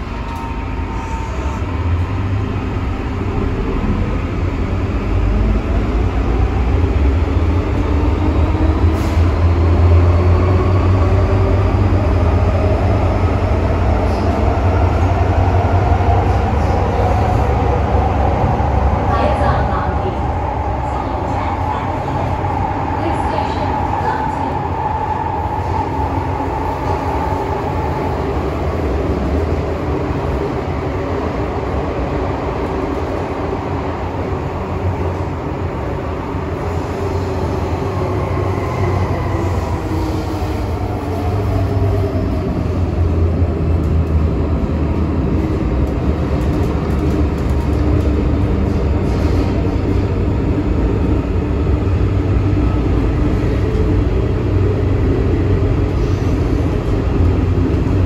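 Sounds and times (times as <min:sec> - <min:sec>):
train running rumble: 0:00.0 - 0:58.0.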